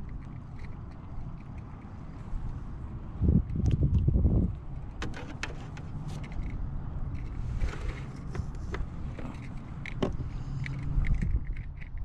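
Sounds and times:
gear knocking and scraping: 0:04.8 - 0:12.0.

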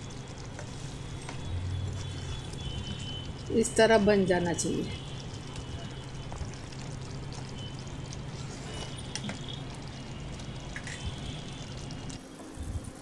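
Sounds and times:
curry bubbling and popping: 0:00.0 - 0:13.0
spatula stirring: 0:00.4 - 0:03.3.

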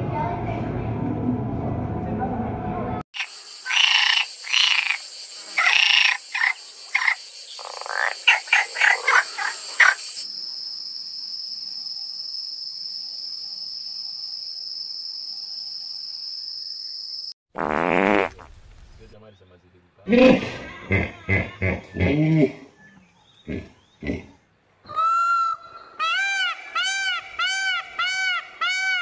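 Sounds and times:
frog croaking: 0:03.2 - 0:10.2
high insect hum: 0:03.2 - 0:17.3.

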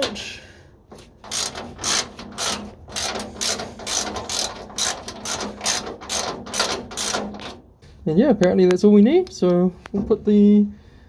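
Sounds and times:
ratchet wrench clicking: 0:01.2 - 0:07.5.

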